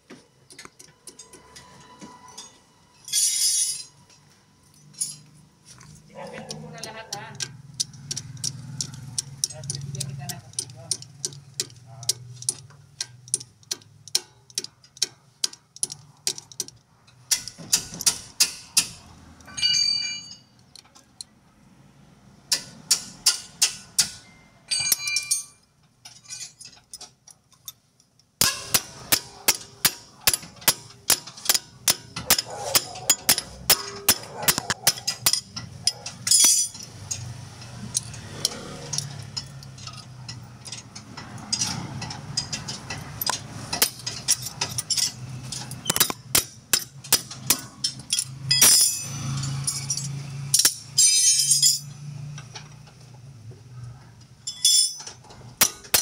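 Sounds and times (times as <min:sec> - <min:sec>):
hammer striking steel: 0:17.3 - 0:20.5, 0:22.5 - 0:25.6, 0:28.4 - 0:37.3, 0:45.8 - 0:51.9, 0:54.5 - 0:56.0.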